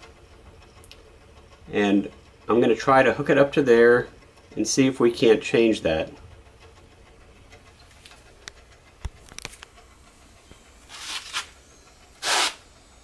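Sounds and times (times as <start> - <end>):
low hum: 6.0 - 13.0.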